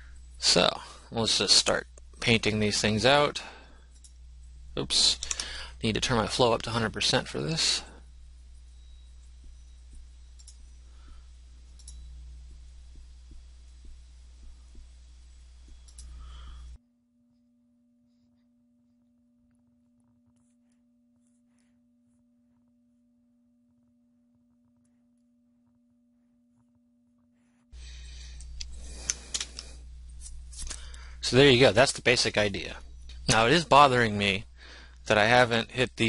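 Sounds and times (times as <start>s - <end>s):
faint steady tone: 0.0s - 25.4s, 27.8s - 36.0s
steady low hum: 0.0s - 36.0s
computer mouse clicks: 10.4s - 10.6s, 11.7s - 12.1s, 15.8s - 16.2s.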